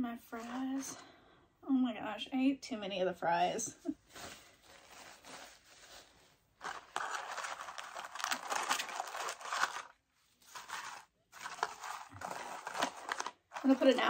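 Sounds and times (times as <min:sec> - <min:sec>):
paper wrappers rustling: 0:04.0 - 0:14.0.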